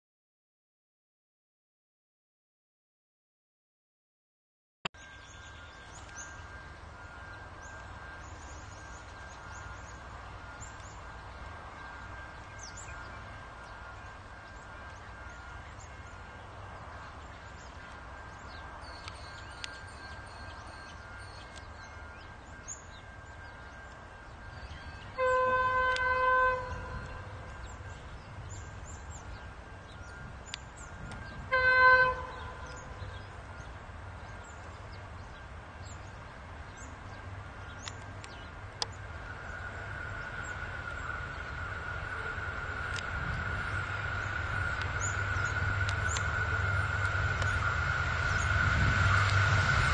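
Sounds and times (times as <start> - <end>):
locomotive horn blasts: 25.0 - 27.6, 31.3 - 33.2.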